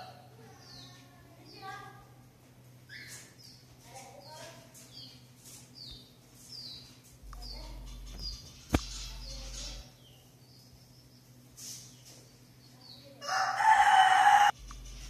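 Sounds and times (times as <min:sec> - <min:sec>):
budgerigars chirping: 0:05.8 - 0:11.1
rooster crowing: 0:13.2 - 0:14.6.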